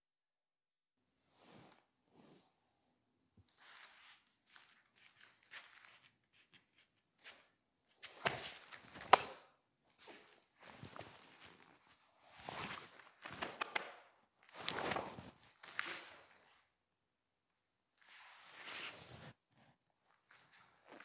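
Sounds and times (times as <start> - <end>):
bare feet shuffling on foam mats: 3.5 - 16.6
cloth rustling: 10.0 - 16.7, 18.0 - 19.4.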